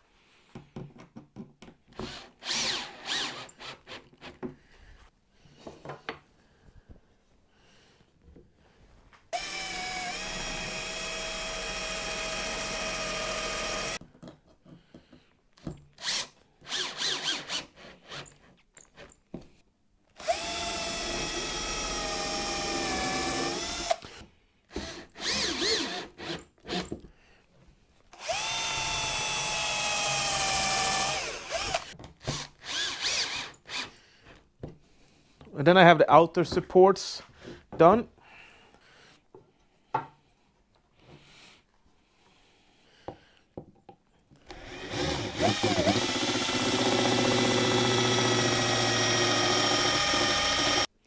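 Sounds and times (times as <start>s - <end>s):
cordless drill whining: 1.9s - 4.3s, 9.4s - 14.0s, 16.0s - 19.1s, 20.2s - 27.0s, 28.2s - 34.0s, 44.4s - 50.9s
screws and wood clicking: 28.2s - 33.9s, 44.4s - 50.9s.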